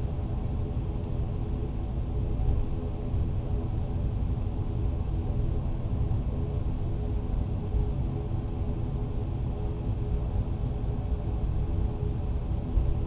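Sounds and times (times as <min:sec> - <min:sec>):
turboprop engine cabin rumble: 0:00.0 - 0:13.0.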